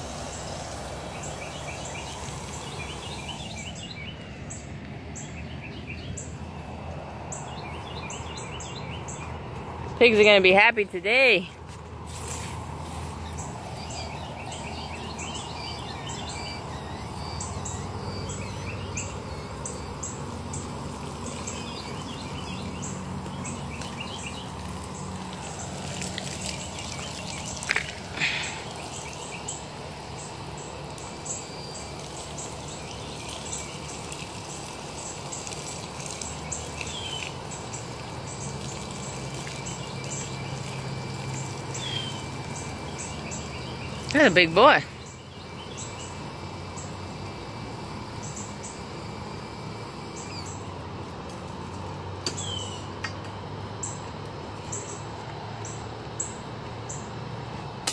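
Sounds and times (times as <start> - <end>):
hose nozzle spraying water: 0.0 - 3.9, 12.0 - 44.8
birds chirping: 0.0 - 50.9, 51.5 - 57.7.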